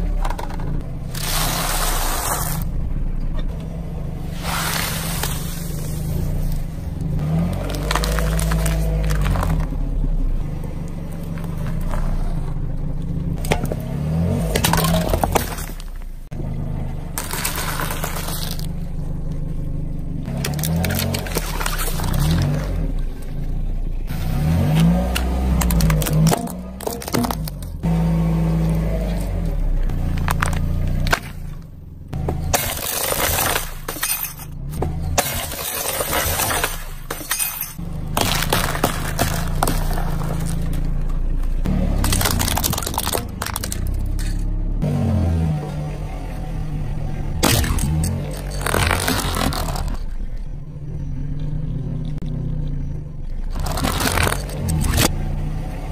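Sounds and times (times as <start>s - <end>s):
low hum: 0.0s - 55.8s
car engine running low: 0.0s - 55.9s
cups and cans crunching: 7.2s - 9.7s, 17.2s - 18.8s, 35.2s - 41.0s, 41.9s - 44.5s, 47.4s - 50.1s, 53.5s - 55.1s.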